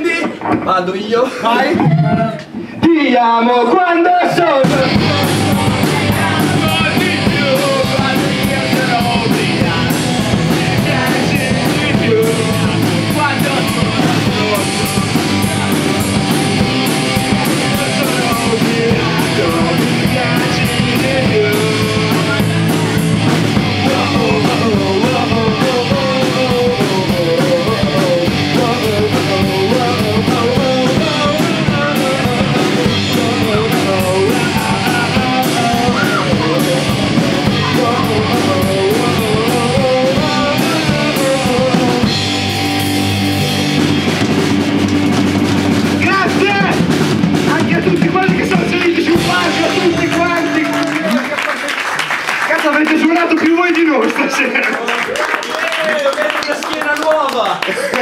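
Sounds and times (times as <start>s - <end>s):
live pop-punk band: 4.2s - 54.3s
person singing: 4.4s - 43.9s, 47.5s - 51.6s.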